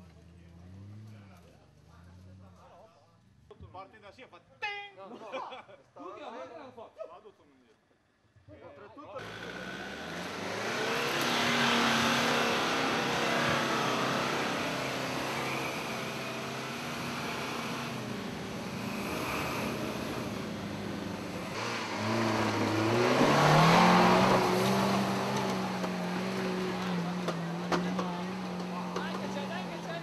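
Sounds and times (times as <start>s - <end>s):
off-road vehicle engines climbing: 0.0s - 3.6s, 9.2s - 30.0s
engine revving up: 0.5s - 2.6s, 9.2s - 30.0s.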